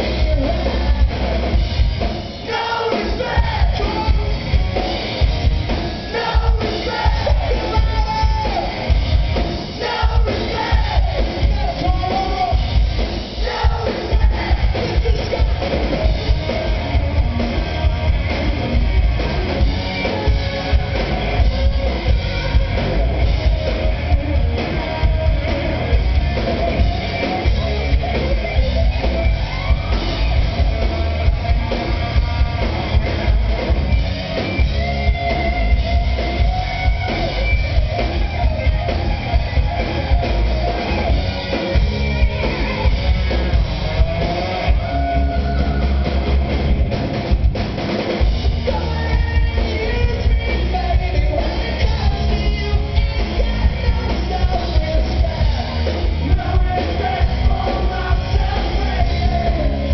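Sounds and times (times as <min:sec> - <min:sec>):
pounding drum kit: 0:00.0 - 0:59.9
rock band playing live: 0:00.0 - 0:59.9
electric guitar lines: 0:14.1 - 0:59.9.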